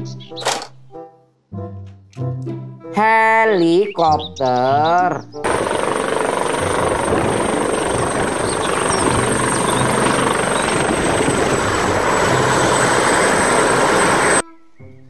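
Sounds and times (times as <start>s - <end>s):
helicopter rotor noise: 5.4s - 14.4s
high turbine whine: 5.5s - 14.4s.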